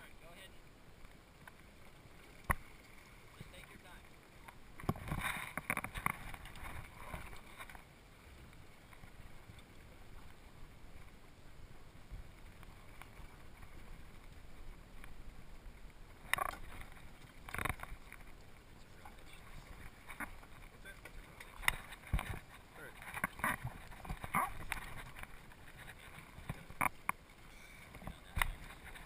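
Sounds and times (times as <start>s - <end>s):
wind and water background: 0.0s - 29.0s
scuba gear knocking and rustling: 4.5s - 7.8s, 16.0s - 27.2s, 27.9s - 29.0s.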